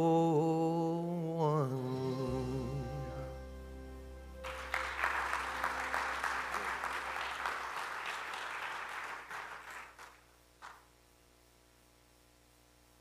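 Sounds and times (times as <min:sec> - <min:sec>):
held musical chord: 0:01.7 - 0:07.8
congregation applauding: 0:04.4 - 0:10.9.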